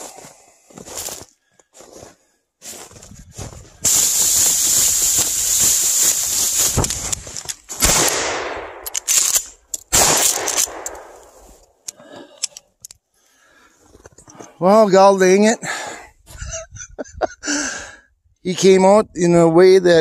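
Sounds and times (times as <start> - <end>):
shotgun shots with echo: 7.8 - 8.8, 9.9 - 11.2.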